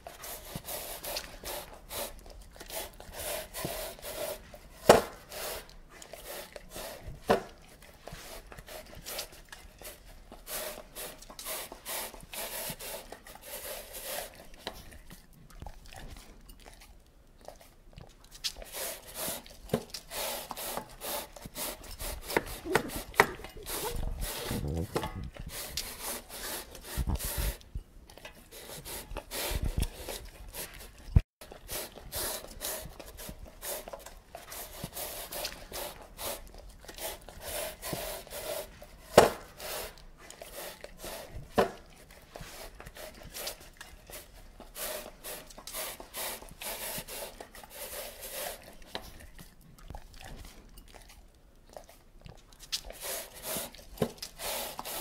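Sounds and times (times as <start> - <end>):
dog licking metal bowl: 28.1 - 55.0.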